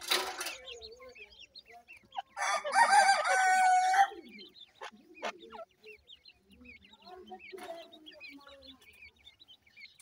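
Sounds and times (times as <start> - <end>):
chicks peeping: 0.0 - 10.0
rooster crowing: 2.4 - 4.2.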